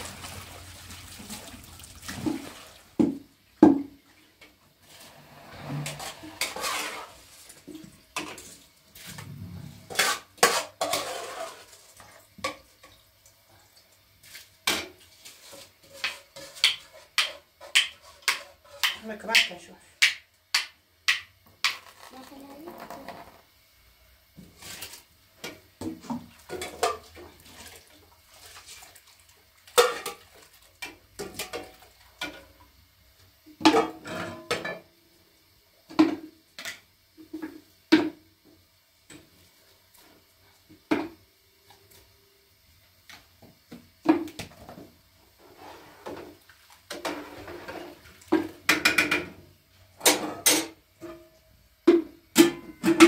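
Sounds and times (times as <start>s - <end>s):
metal pots and lids clanking: 26.5s - 27.3s, 29.7s - 30.3s, 33.6s - 34.9s, 50.0s - 53.0s.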